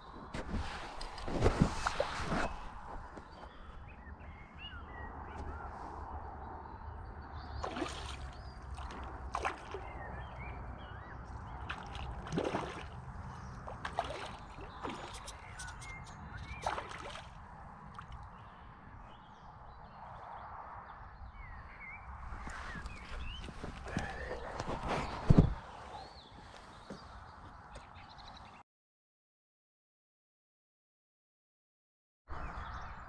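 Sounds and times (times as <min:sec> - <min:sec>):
small birds chirping: 0:02.4 - 0:28.6
lake water splashing: 0:07.6 - 0:18.4.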